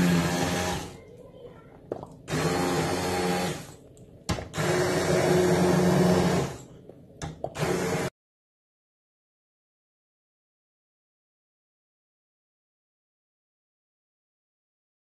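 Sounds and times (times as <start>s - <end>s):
immersion blender motor humming: 0.0s - 1.0s, 2.3s - 3.8s, 4.5s - 6.7s, 7.6s - 8.1s.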